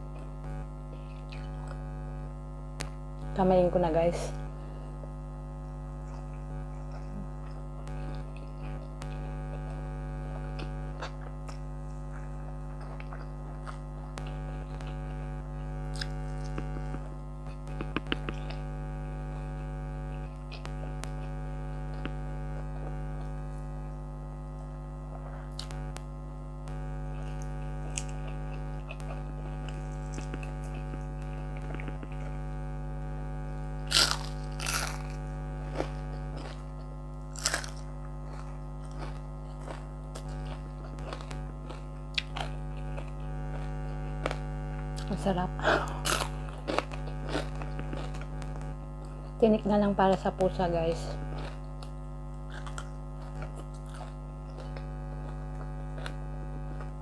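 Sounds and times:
air conditioner humming: 0:00.0 - 0:57.0
close-up chewing: 0:00.9 - 0:01.9, 0:10.5 - 0:15.1, 0:33.9 - 0:49.4, 0:51.2 - 0:57.0
fried fish crunching: 0:27.1 - 0:32.4, 0:33.8 - 0:49.4, 0:51.2 - 0:57.0.

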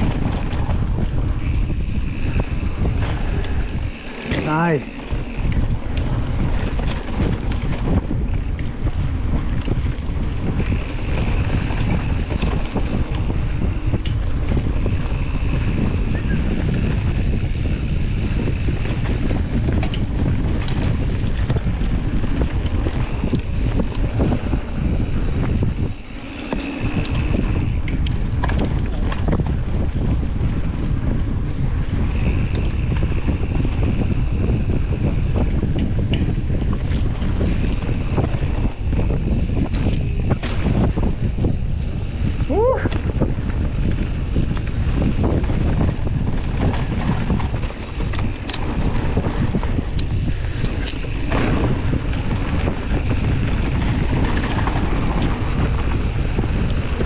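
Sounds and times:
bike rattling on dirt trail: 0:00.0 - 0:57.0
wind buffeting microphone: 0:00.0 - 0:57.0.

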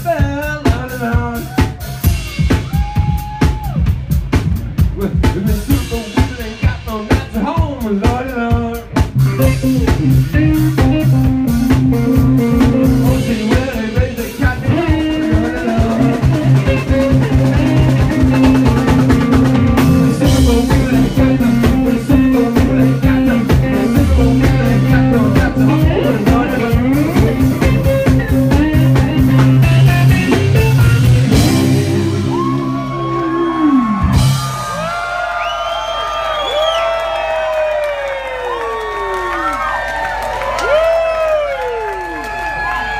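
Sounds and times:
blues-rock band playing: 0:00.0 - 0:35.0
crowd cheering and whooping: 0:01.4 - 0:04.0, 0:31.4 - 0:42.9
electric guitar note bending: 0:16.0 - 0:34.4.

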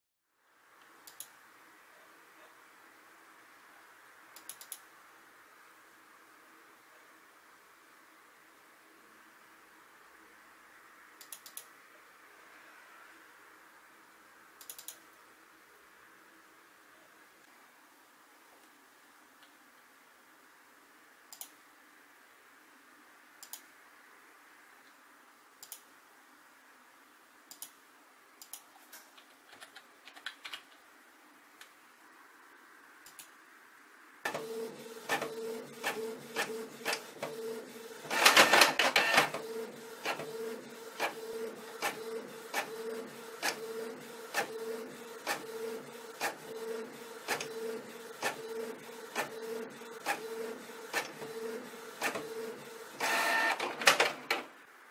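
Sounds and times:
faint clicks: 0:04.4 - 0:04.8, 0:11.2 - 0:11.7, 0:14.6 - 0:15.0, 0:21.3 - 0:21.6, 0:23.4 - 0:23.7, 0:25.6 - 0:25.9, 0:27.5 - 0:27.8, 0:28.4 - 0:30.8, 0:33.0 - 0:33.4
printer print head clicking: 0:34.3 - 0:54.5
printer pulsing hum: 0:34.3 - 0:54.5
printer whir: 0:34.3 - 0:54.6.

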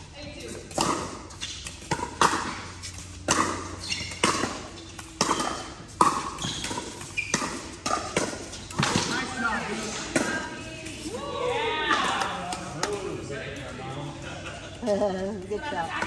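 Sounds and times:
paddles hitting plastic ball: 0:00.7 - 0:09.3.

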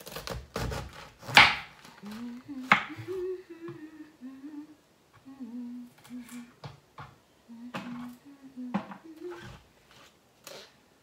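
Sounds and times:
woman humming: 0:01.9 - 0:06.7, 0:07.4 - 0:09.6.

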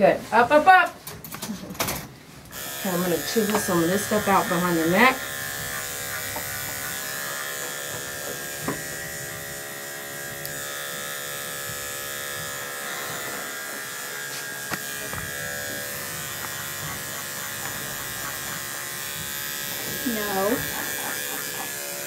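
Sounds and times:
electric clipper buzzing: 0:02.5 - 0:22.0.

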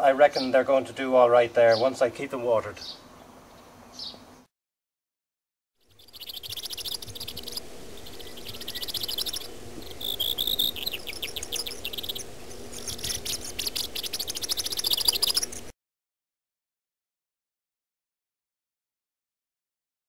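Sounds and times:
high-pitched chirping trills: 0:05.8 - 0:15.7
faint low steady hum: 0:06.0 - 0:15.7.

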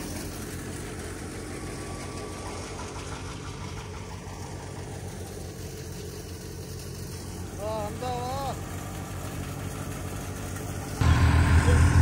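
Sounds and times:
thresher machine hum: 0:00.0 - 0:12.0
rushing noise: 0:11.0 - 0:12.0.

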